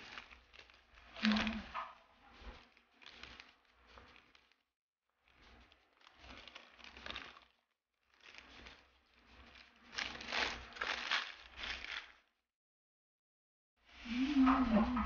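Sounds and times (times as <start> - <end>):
crispy fried food crunching: 0.0 - 1.7, 2.4 - 4.6, 5.4 - 12.3.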